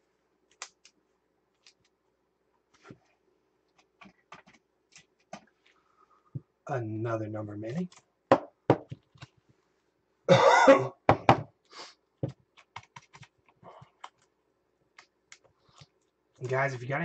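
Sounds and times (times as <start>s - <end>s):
person coughing: 10.3s - 11.1s.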